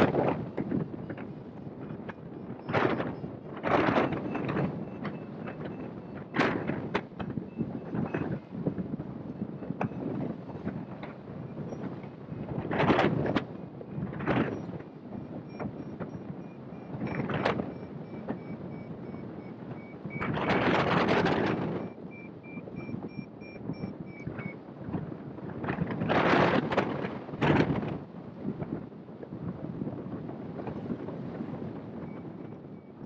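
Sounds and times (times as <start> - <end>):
wind buffeting microphone: 0.0 - 33.0
variometer beeping: 0.9 - 8.5, 14.4 - 24.6.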